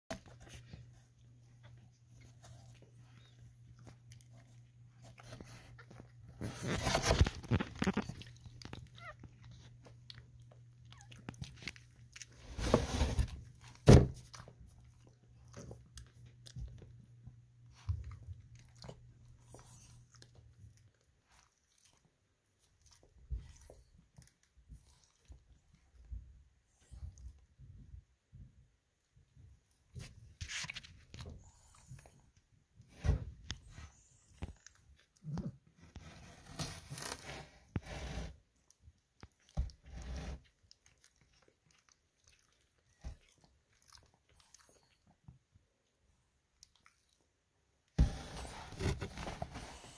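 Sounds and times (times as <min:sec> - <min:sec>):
dog licking puppies: 0:38.5 - 0:48.0.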